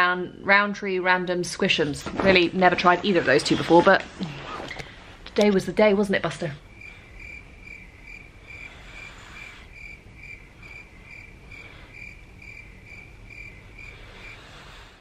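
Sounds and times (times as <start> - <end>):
cricket chirping: 6.6 - 15.0.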